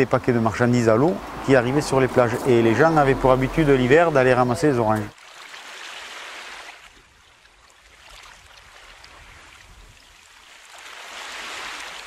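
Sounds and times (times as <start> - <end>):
water rushing: 0.0 - 12.0.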